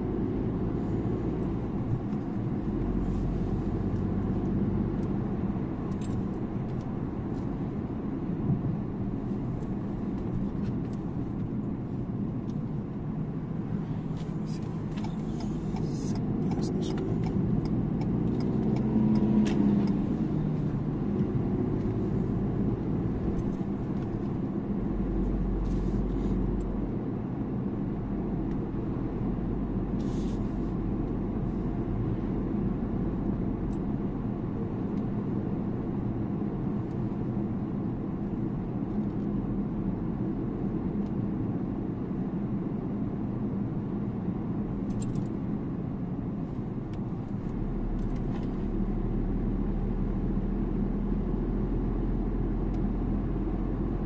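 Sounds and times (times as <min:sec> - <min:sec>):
car road noise inside cabin: 0:00.0 - 0:54.0.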